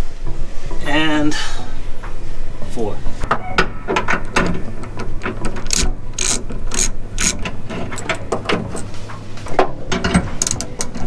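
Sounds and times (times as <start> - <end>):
hand ratchet clicking: 4.9 - 8.9, 10.0 - 11.0.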